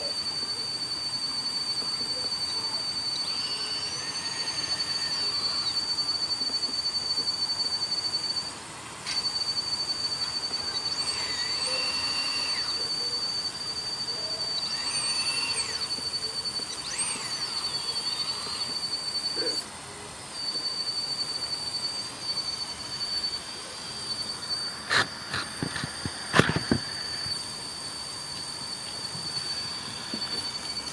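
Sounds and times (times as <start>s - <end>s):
electric motors whining: 0.0s - 30.9s.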